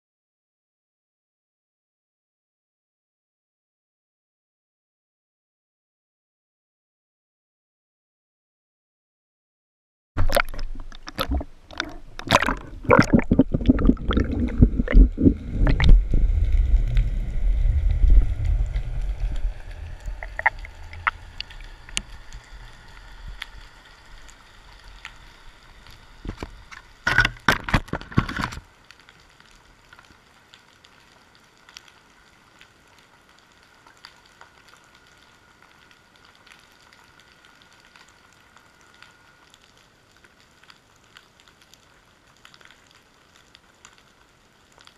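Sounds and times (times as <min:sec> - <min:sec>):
faint underwater hiss: 0:10.2 - 0:27.3
water splashing around camera: 0:10.2 - 0:28.7
heavy low rumble: 0:10.7 - 0:26.7.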